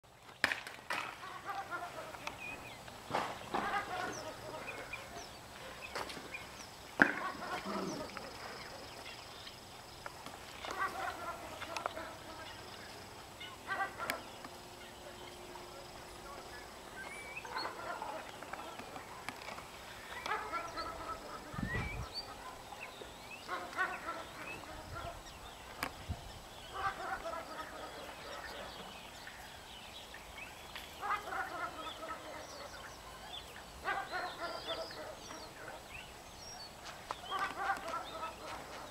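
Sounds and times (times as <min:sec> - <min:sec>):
turkey gobbling: 0:01.2 - 0:02.6, 0:03.4 - 0:06.2, 0:07.0 - 0:09.0, 0:10.6 - 0:15.0, 0:16.6 - 0:22.7, 0:23.5 - 0:25.2, 0:26.7 - 0:29.0, 0:31.0 - 0:33.0, 0:37.3 - 0:38.9.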